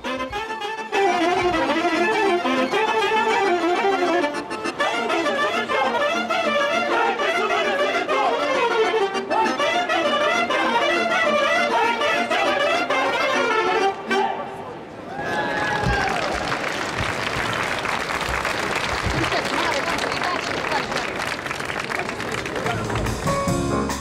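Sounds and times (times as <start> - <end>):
violins: 0.0 - 14.3
folk band dance tune: 0.0 - 14.4, 16.9 - 24.0
saxophones and brass: 0.0 - 14.6.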